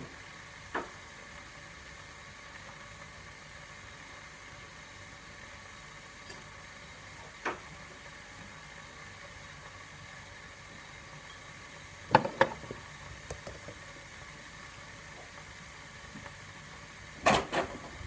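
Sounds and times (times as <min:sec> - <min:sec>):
ceramic mug clunking on worktop: 0:12.1 - 0:13.6.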